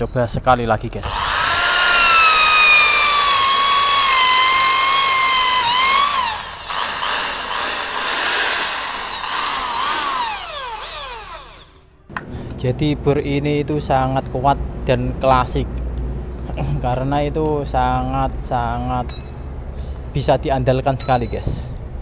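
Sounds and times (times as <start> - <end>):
drill motor whining boring wood: 1.0 - 11.8.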